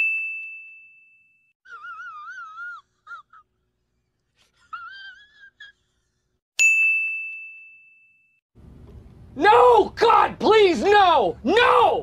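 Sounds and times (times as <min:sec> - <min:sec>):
squeaky wheezing laugh: 0:01.6 - 0:03.6, 0:04.4 - 0:06.4
bell ding: 0:06.6 - 0:08.4.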